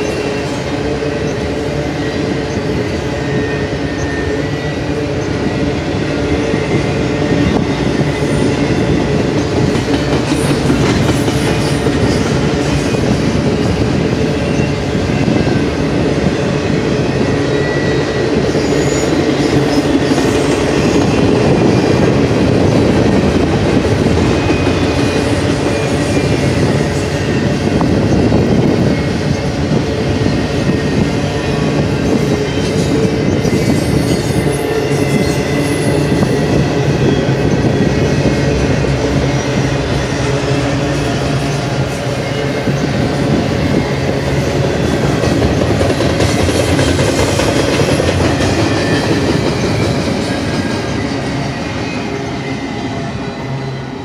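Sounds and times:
high wheel squeal: 0.0s - 9.0s, 17.0s - 23.2s, 48.2s - 54.0s
train wheels rumbling on rail: 0.0s - 54.0s.

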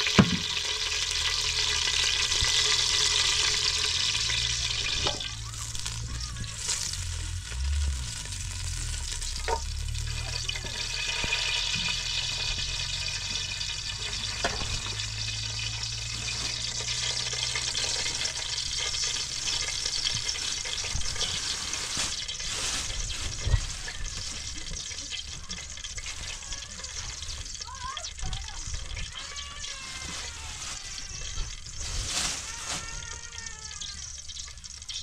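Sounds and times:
food sizzling in a pan: 0.0s - 35.0s
low hum: 0.7s - 17.4s.

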